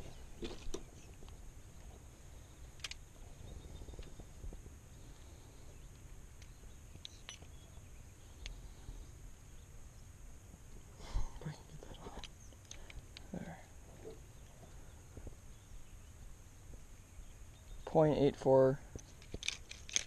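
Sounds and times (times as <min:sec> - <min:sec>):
faint high hum: 0:00.0 - 0:19.7
small metal clicks and clinks: 0:06.4 - 0:07.7, 0:19.0 - 0:20.0.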